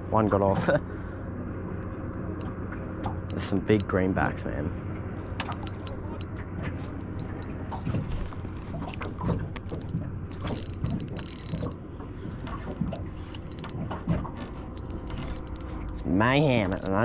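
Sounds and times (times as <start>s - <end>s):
steady low hum: 0.0s - 17.0s
fishing reel whirring and clicking: 5.2s - 7.6s, 8.2s - 11.8s, 12.4s - 13.8s, 14.4s - 17.0s.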